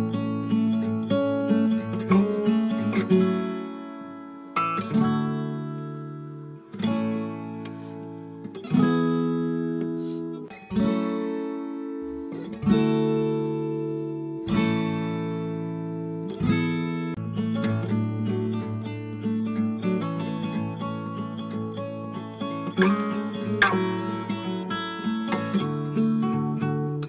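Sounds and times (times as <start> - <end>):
acoustic guitar strumming chords: 0.0 - 27.0.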